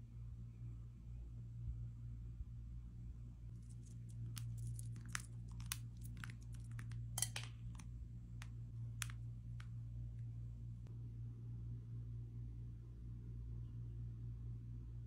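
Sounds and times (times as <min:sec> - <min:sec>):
chocolate chips sprinkled ticking: 0:03.5 - 0:09.7.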